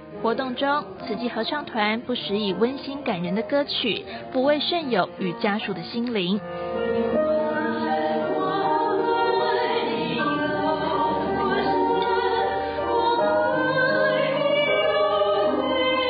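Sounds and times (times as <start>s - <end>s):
choir singing long notes: 7.1s - 16.0s.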